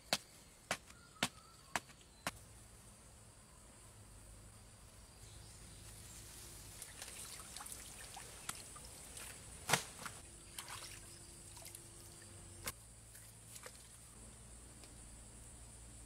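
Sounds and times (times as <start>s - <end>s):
water trickling and dripping: 6.7s - 9.4s, 10.4s - 14.1s
person stepping in shallow pond: 6.8s - 11.8s.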